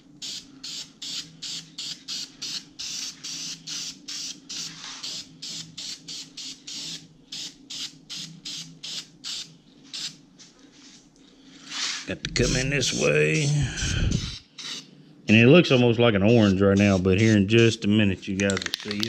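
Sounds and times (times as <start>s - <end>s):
aerosol spray can hissing: 11.7s - 14.8s, 15.7s - 17.6s.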